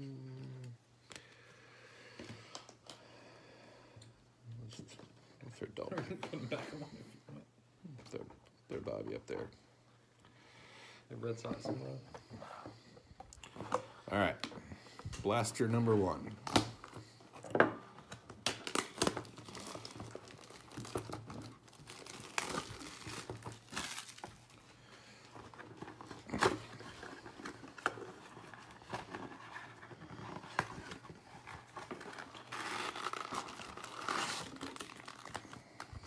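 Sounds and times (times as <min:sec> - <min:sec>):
wrapper crinkling: 0:18.5 - 0:24.7, 0:30.0 - 0:36.0
cardboard tearing and scraping: 0:26.1 - 0:35.4.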